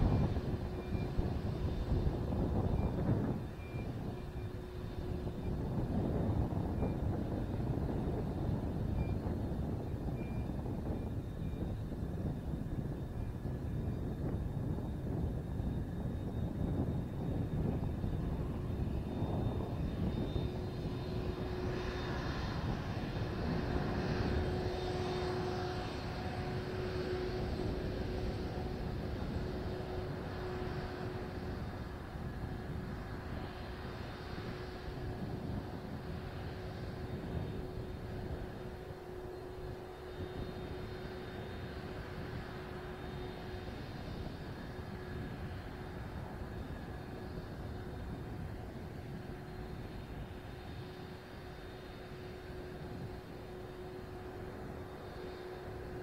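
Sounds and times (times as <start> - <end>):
jet engine low rumble: 0.0 - 56.0
jet engine whine: 0.0 - 56.0
jet engine hiss: 14.6 - 56.0.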